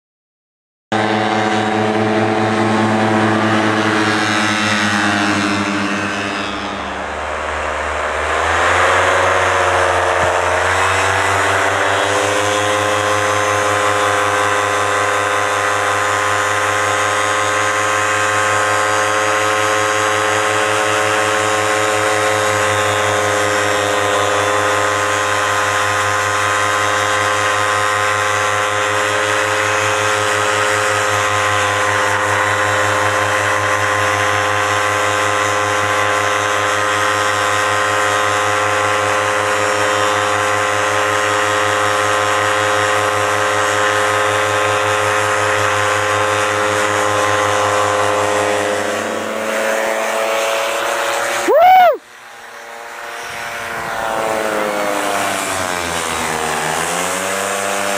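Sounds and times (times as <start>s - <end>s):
paramotor engine and propeller: 0.9s - 57.9s.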